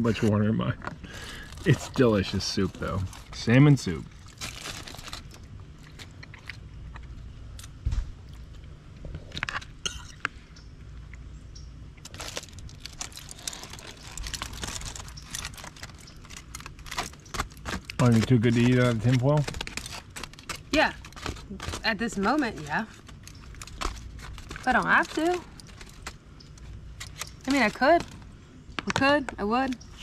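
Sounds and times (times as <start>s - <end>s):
foil crinkling: 1.0s - 7.1s, 12.0s - 28.4s.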